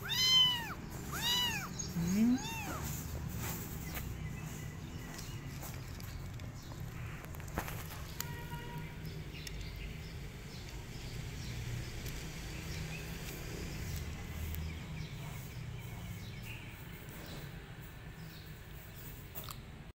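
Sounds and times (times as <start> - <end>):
kitten crunching dry kibble: 5.2 - 14.6.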